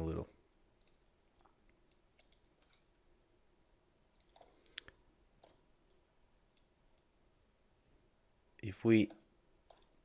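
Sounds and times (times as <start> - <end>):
computer mouse clicks: 0.8 - 2.9, 4.1 - 7.1, 9.0 - 10.0.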